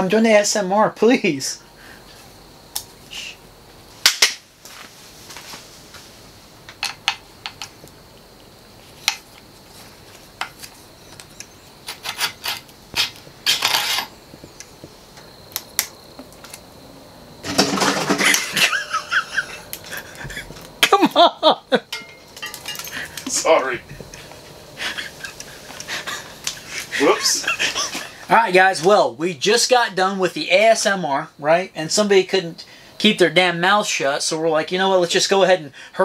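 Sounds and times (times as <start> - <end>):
metal tool clicks and clinks: 21.9 - 23.3
man's voice: 23.3 - 23.9, 27.0 - 27.6.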